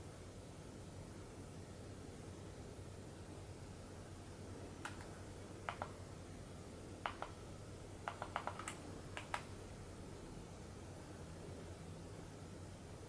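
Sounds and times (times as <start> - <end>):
faint low hum: 0.0 - 13.0
remote control button clicks: 5.7 - 5.9.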